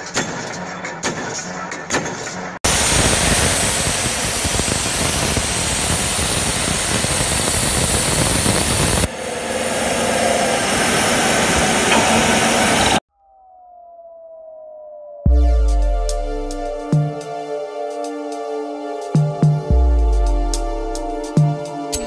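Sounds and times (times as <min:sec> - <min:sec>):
end mill hissing cutting steel: 0:02.7 - 0:13.0.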